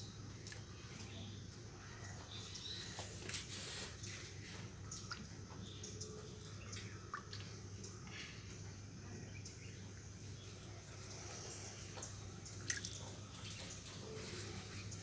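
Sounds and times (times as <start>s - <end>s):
steady low hum: 0.0s - 15.0s
water dripping into bucket: 4.8s - 8.7s, 11.8s - 13.9s.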